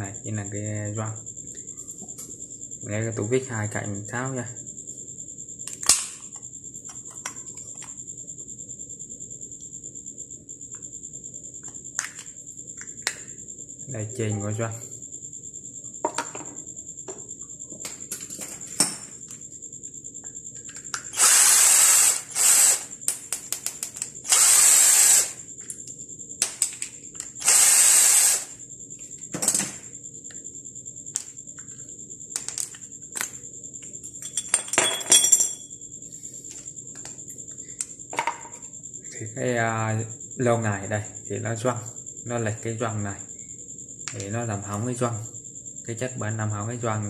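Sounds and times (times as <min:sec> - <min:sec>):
cordless drill running: 0:21.1 - 0:22.9, 0:24.2 - 0:25.4, 0:27.4 - 0:28.6
small parts clattering: 0:32.3 - 0:33.4, 0:34.2 - 0:35.6.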